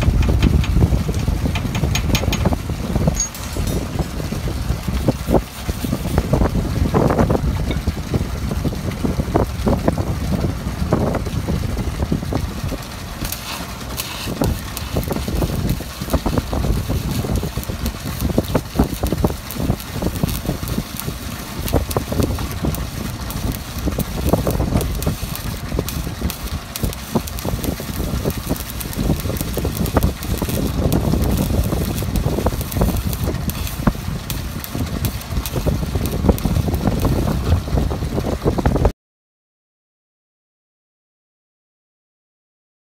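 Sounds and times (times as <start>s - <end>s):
wind buffeting microphone: 0.0s - 38.9s
faint crackles: 12.3s - 37.7s.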